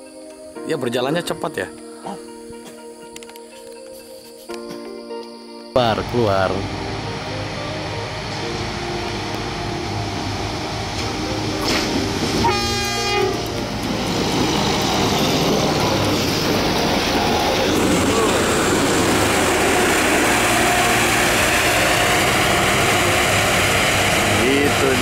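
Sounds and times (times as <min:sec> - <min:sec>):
diesel engine of rail vehicle: 0:05.9 - 0:25.0
short horn blast: 0:11.0 - 0:13.6.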